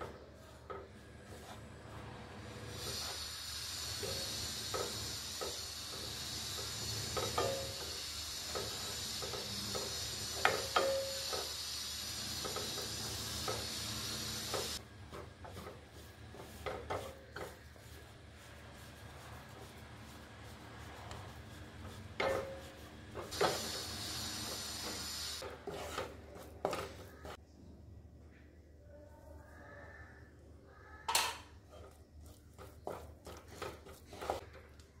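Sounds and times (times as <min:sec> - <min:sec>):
wooden spatula scraping pan: 0:00.0 - 0:03.3, 0:14.5 - 0:23.8, 0:24.5 - 0:27.4, 0:31.7 - 0:34.7
sizzling hiss: 0:02.5 - 0:14.9, 0:16.0 - 0:25.4.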